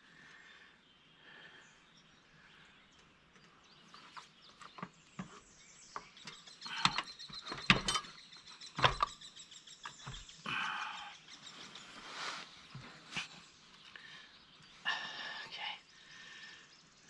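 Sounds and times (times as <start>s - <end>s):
metal clicks and knocks: 4.6s - 9.2s.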